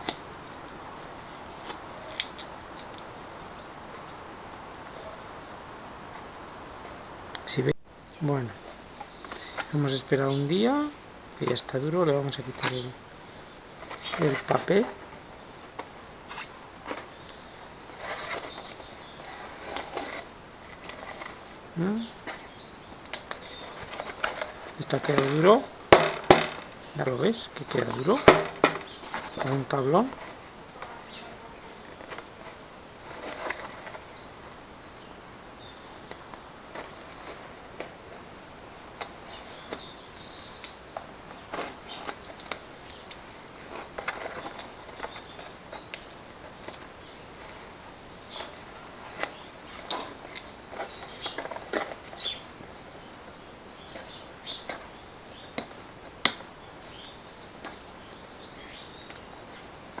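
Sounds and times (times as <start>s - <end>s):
stiff paper crinkling: 0.0s - 3.2s, 13.8s - 34.3s, 39.0s - 52.8s.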